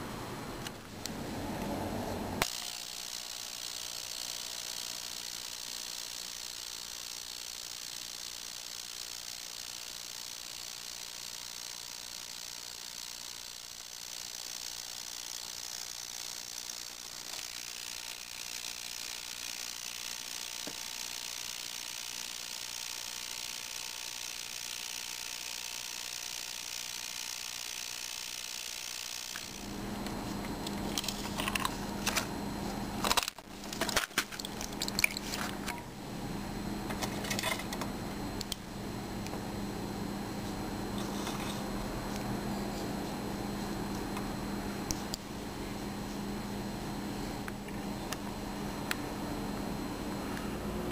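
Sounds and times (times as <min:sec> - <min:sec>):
metal parts clinking: 0:30.6 - 0:32.2, 0:33.0 - 0:35.8, 0:36.9 - 0:37.8.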